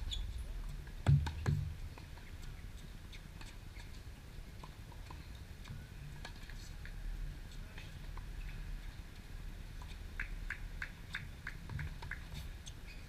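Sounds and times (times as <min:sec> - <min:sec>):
faint low rumble: 0:00.0 - 0:03.7.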